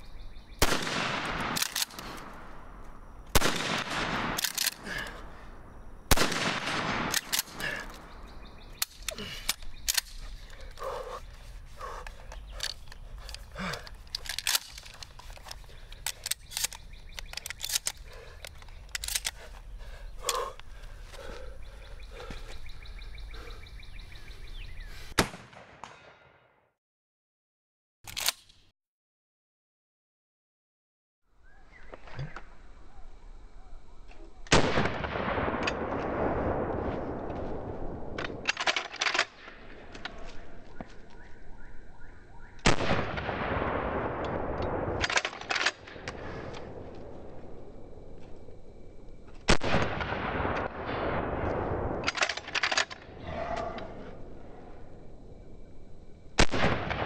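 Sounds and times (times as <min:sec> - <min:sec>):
shotgun blast echo: 0:00.6 - 0:02.4, 0:06.1 - 0:07.6, 0:25.2 - 0:26.3, 0:56.4 - 0:57.0
shotgun shells loading clicks: 0:01.4 - 0:02.3, 0:04.4 - 0:04.8, 0:07.1 - 0:08.1, 0:08.8 - 0:10.8, 0:12.3 - 0:19.4, 0:28.1 - 0:28.6, 0:38.2 - 0:39.4, 0:44.2 - 0:46.6, 0:52.0 - 0:53.1.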